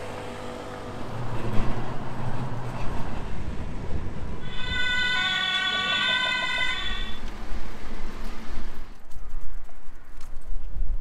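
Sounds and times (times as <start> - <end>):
street traffic rumble: 0.0 - 11.0
high-pitched multi-tone squeal: 4.4 - 7.3.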